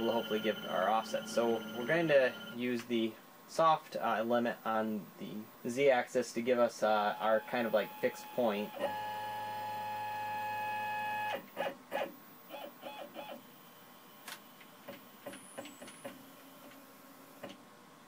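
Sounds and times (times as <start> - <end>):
stepper motors whining: 0.0 - 2.6, 7.2 - 11.2.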